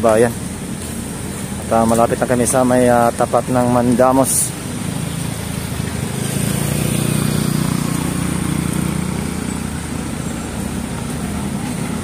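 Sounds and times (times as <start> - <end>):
motorcycle engine passing by: 4.6 - 12.0.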